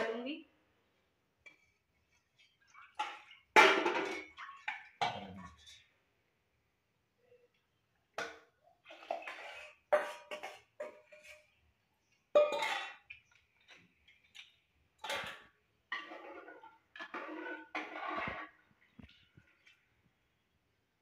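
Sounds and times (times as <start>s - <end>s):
utensils clinking on metal pot: 2.8s - 5.8s, 8.9s - 11.6s, 12.3s - 19.5s.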